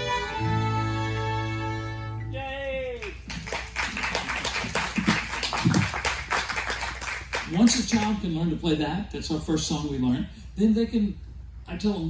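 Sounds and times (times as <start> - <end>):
fiddles and acoustic guitar: 0.0 - 2.5
audience applauding: 3.0 - 8.2.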